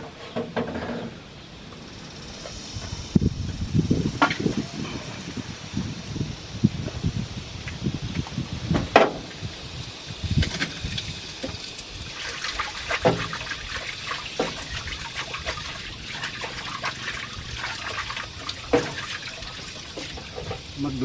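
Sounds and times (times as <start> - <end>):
water splashing into steel sink: 10.3 - 20.8.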